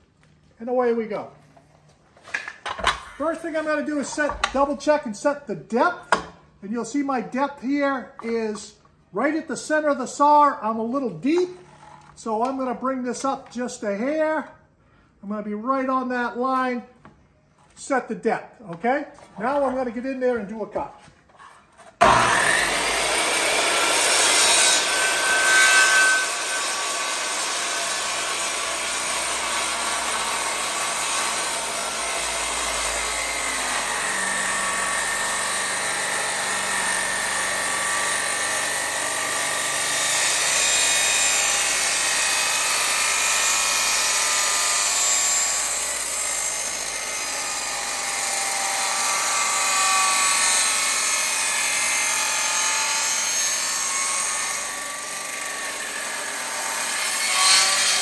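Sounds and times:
circular saw cutting wood: 21.8 - 58.0.

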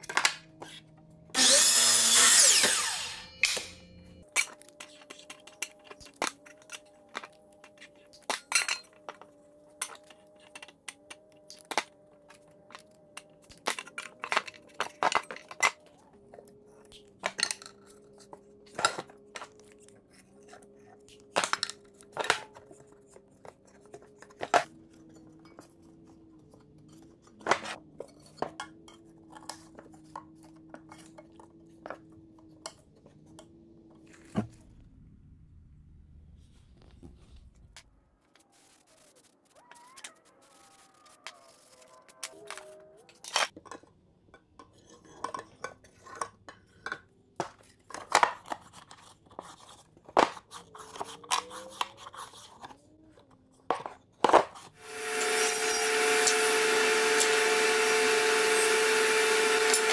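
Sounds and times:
miter saw winding down: 1.4 - 4.0, 54.8 - 59.9.

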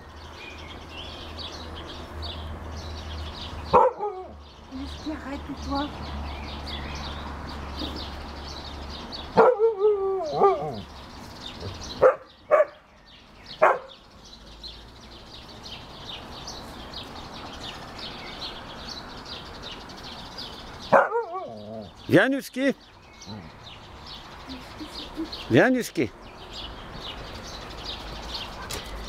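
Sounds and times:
small birds chirping faintly: 0.0 - 29.0
dog barking sharply: 3.7 - 4.3, 13.6 - 13.9.

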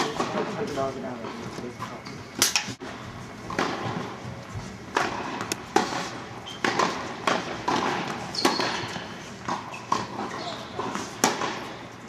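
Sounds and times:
tennis balls struck by rackets: 3.4 - 4.2, 4.9 - 11.8
tennis balls bouncing on court: 3.5 - 4.2, 4.9 - 11.8.

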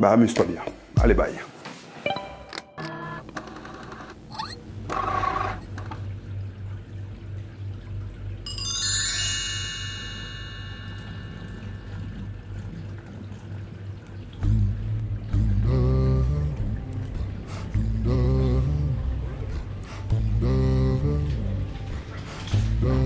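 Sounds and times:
descending chime tones: 8.5 - 12.3
steady low drone: 14.4 - 23.0.

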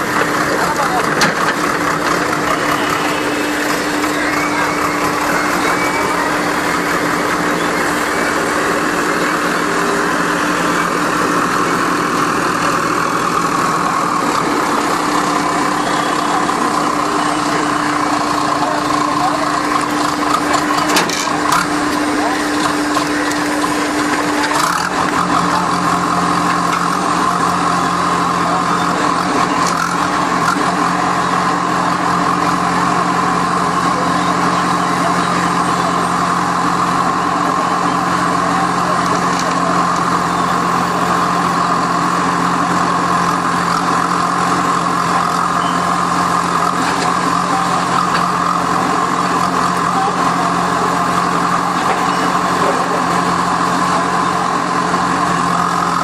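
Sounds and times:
constant whine: 0.0 - 56.0
diesel engine running: 0.0 - 56.0.

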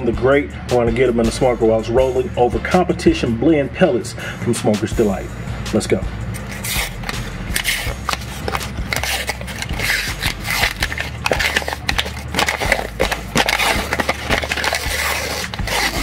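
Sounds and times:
paper label crinkling and tearing: 6.4 - 16.0.

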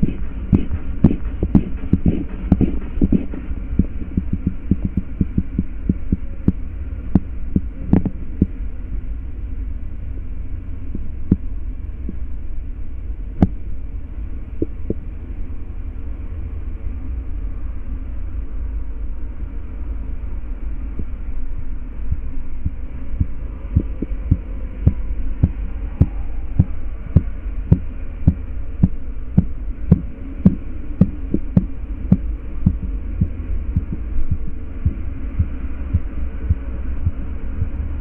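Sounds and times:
pulse taps through stethoscope: 0.0 - 6.6, 22.6 - 29.0
steady low rumble: 0.0 - 38.0.

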